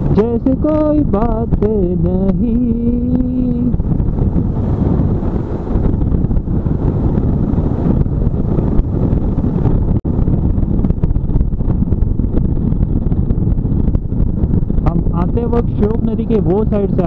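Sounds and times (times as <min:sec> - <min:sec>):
motorcycle engine running: 0:00.0 - 0:17.0
wind rushing over microphone: 0:00.0 - 0:17.0.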